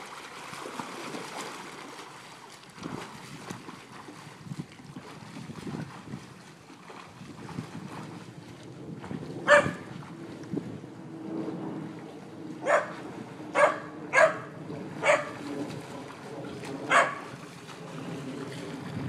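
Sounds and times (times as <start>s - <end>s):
puppy barking: 9.5s - 9.8s, 12.6s - 12.9s, 13.6s - 15.4s, 16.9s - 17.2s.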